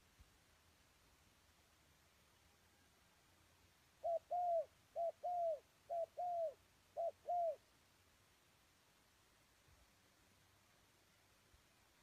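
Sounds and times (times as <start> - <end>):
dove cooing: 4.0 - 7.6.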